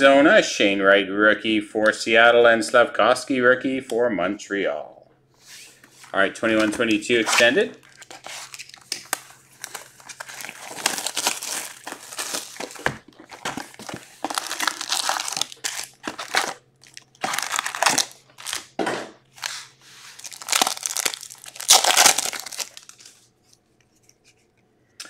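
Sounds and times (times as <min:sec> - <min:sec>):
foil packs crinkling: 0:06.4 - 0:23.3.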